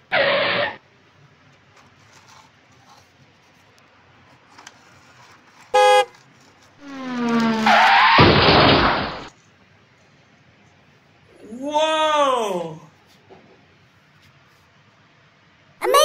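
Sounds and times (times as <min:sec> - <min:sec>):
car horn toot: 0:05.8 - 0:06.1.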